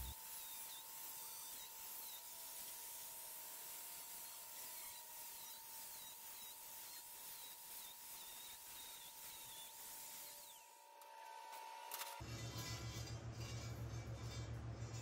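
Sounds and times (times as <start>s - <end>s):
angle grinder cutting metal mesh: 0.0s - 10.7s.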